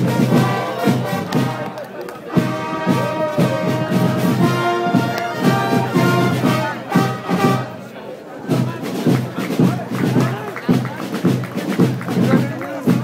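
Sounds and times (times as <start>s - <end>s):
brass band playing: 0.0s - 7.9s.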